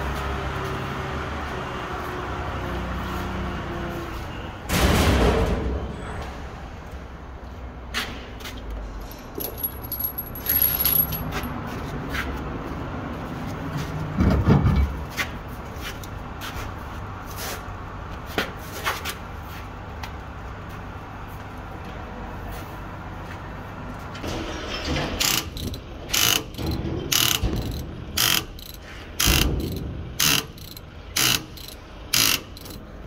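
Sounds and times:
metallic clinks and knocks: 9.0s - 11.6s, 24.9s - 32.8s.

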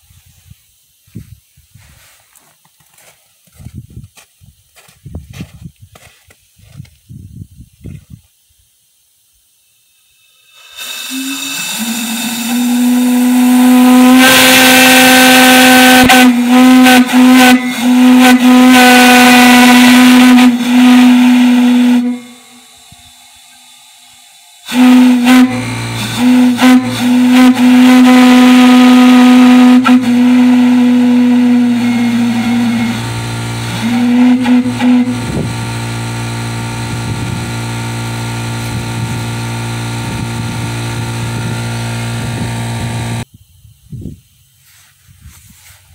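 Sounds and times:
steady low hum: 9.2s - 44.6s
steam whistle blasts: 10.2s - 43.2s.

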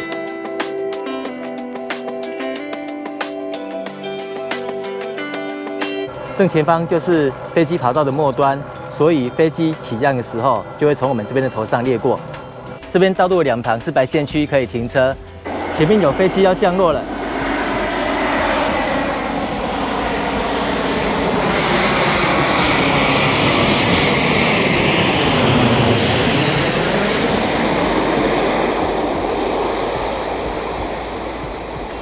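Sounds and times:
jet engine roar: 0.0s - 32.0s
engine whine falling in pitch: 4.0s - 12.8s, 15.4s - 32.0s.

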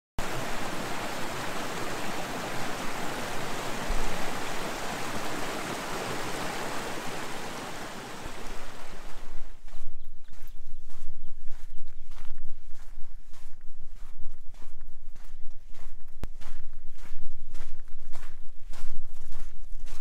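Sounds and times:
water rushing over boulders: 0.2s - 9.4s.

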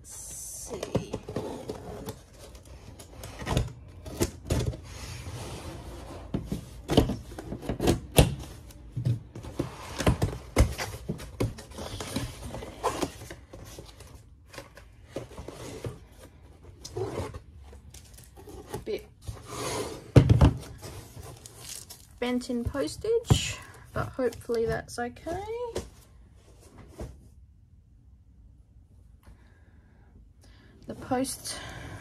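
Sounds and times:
packaging rustling and crinkling: 20.6s - 23.3s.

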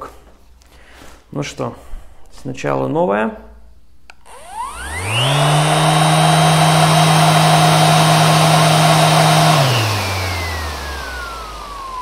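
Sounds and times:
orbital sander whine: 4.2s - 12.0s.

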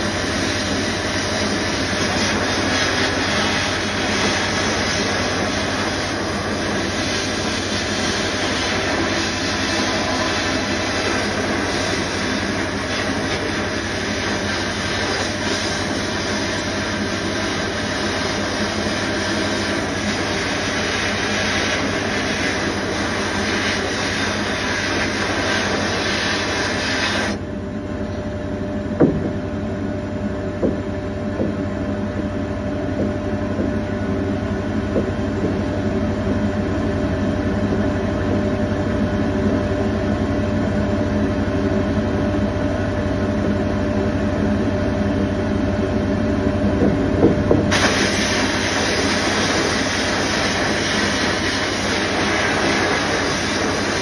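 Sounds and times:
sandblasting gun hissing: 0.1s - 27.4s, 47.7s - 54.0s
machine hum: 23.8s - 49.2s.

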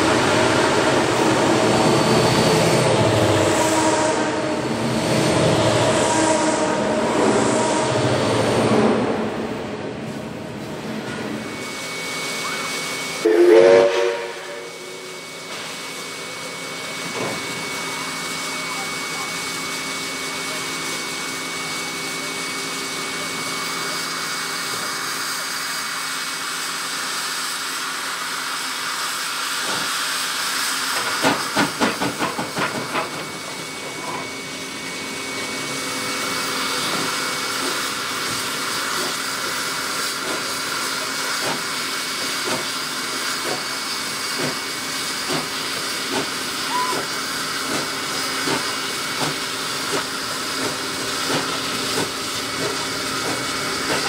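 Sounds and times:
steam locomotive exhaust chuffs: 0.0s - 54.0s
steam hissing: 11.4s - 54.0s.

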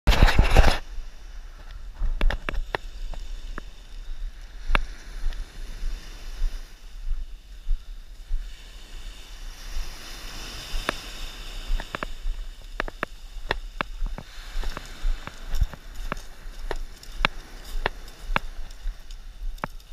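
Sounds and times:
sharp clicks and crunches: 0.1s - 0.9s, 2.1s - 2.9s
surf washing up a sand beach: 0.1s - 19.9s.

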